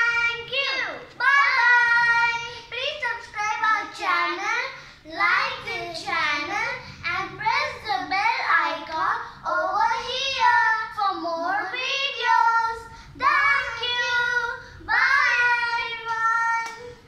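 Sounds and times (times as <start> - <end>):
girls singing: 12.1 - 17.0.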